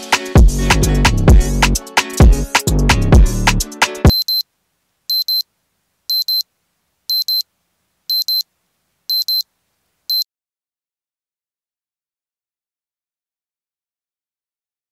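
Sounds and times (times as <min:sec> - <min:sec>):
alarm clock double beeps: 0:04.1 - 0:04.4, 0:05.1 - 0:05.4, 0:06.1 - 0:06.4, 0:07.1 - 0:07.4, 0:08.1 - 0:08.4, 0:09.1 - 0:09.4.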